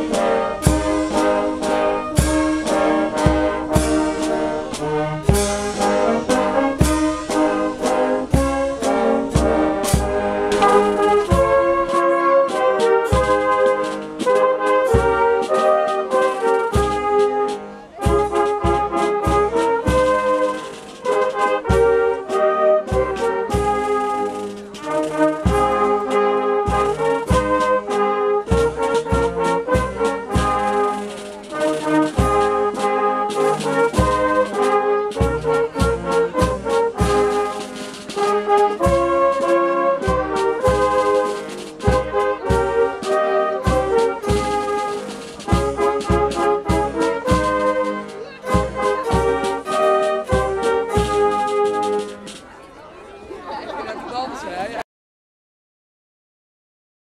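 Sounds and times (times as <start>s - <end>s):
brass band playing: 0.0s - 52.5s
bass drum beat: 2.2s - 12.0s.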